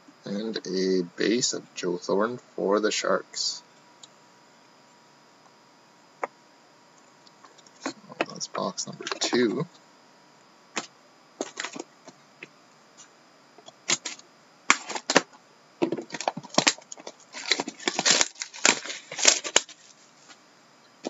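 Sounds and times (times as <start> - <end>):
shrink wrap crinkling and tearing: 16.1 - 20.0.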